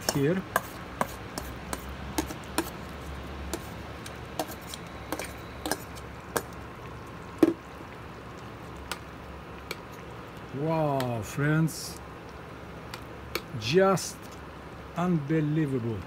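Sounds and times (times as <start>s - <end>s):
metal spoon scraping steel bowl: 0.0s - 2.8s, 4.4s - 6.0s.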